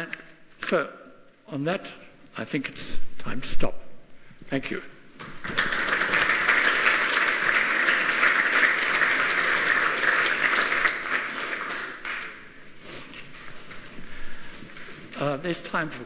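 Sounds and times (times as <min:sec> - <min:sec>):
audience applauding: 0:05.2 - 0:12.7.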